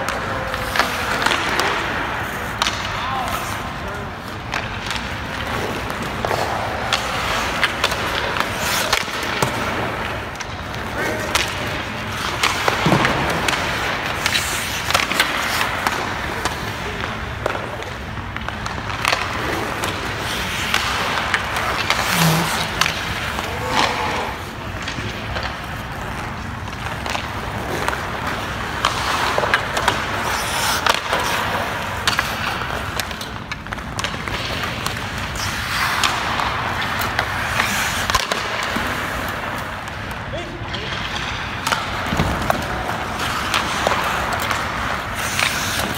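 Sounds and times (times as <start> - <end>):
skate blades scraping ice: 0.0 - 45.9
sticks and pucks knocking: 40.9 - 45.9.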